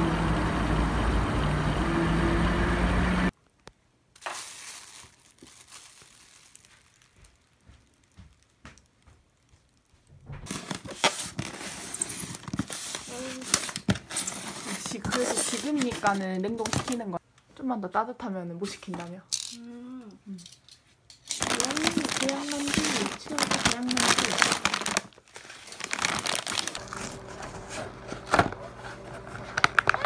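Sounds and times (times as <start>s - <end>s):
fuel dispenser humming: 0.0s - 3.3s, 26.8s - 30.0s.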